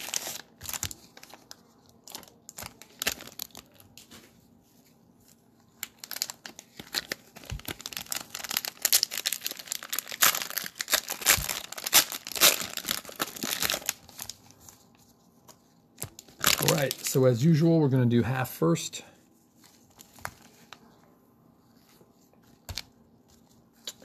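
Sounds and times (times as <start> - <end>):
cellophane wrappers crinkling and tearing: 0.0 - 4.3, 5.2 - 17.6, 19.5 - 20.9.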